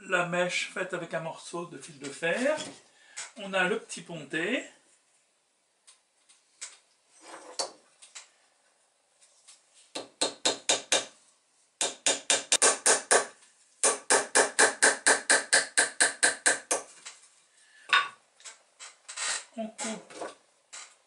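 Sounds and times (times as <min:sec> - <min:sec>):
hammer tapping metal staple: 0:11.8 - 0:16.9.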